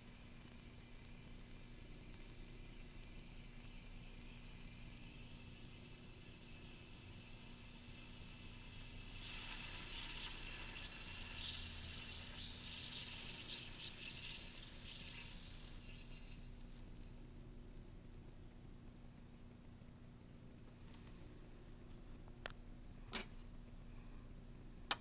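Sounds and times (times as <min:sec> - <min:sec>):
metal fizzing in water: 0:08.0 - 0:17.5.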